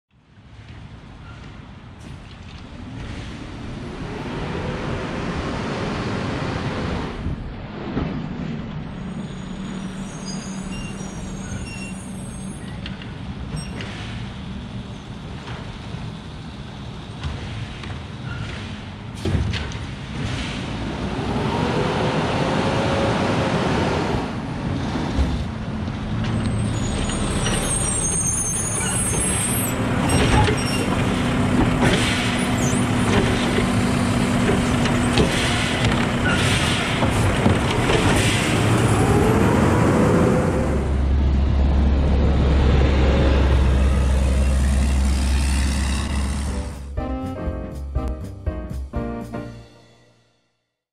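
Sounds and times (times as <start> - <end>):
air brakes hissing: 9.1 - 12.8, 35.2 - 37.3
garbage truck engine revving: 20.4 - 47.1
trash cart clanks and knocks: 29.9 - 38.8
car passing: 38.2 - 46.9
hydraulic arm whining: 43.4 - 46.9.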